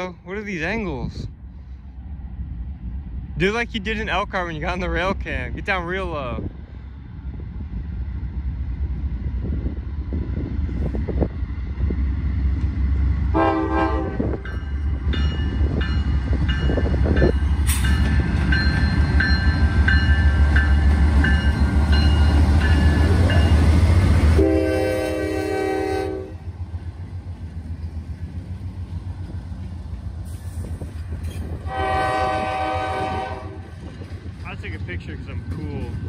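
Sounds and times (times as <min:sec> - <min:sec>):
diesel locomotive engine rumbling: 0:00.0 - 0:36.0
train horn blasts: 0:13.3 - 0:14.4, 0:24.3 - 0:26.4, 0:31.6 - 0:33.8.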